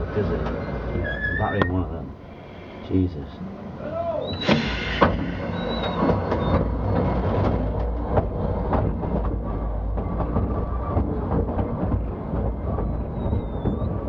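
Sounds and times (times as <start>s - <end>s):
train clanks and knocks: 0.0s - 1.9s, 4.3s - 14.0s
mine train rumbling on rails: 0.0s - 14.0s
high-pitched squeals: 1.0s - 1.8s, 3.9s - 7.1s.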